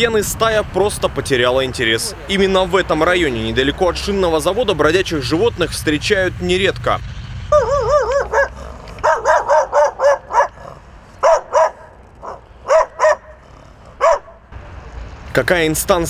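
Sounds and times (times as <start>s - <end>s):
dog barking: 7.6s - 13.4s, 14.0s - 14.4s.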